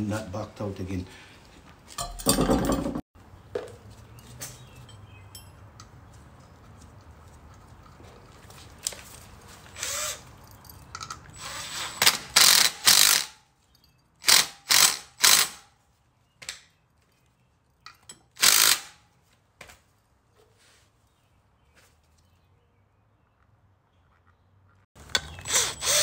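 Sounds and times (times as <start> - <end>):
impact driver bursts: 11.4 - 13.4, 14.2 - 15.6, 18.4 - 19.0, 25.3 - 26.0.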